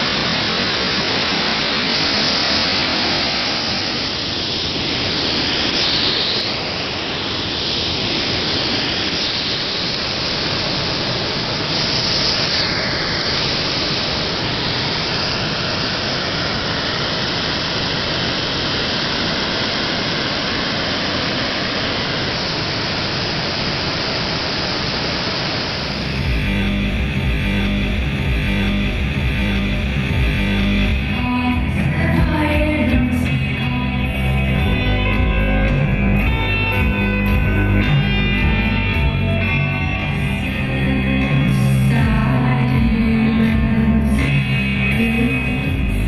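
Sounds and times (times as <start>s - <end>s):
water rushing over rocks: 0.0s - 28.4s.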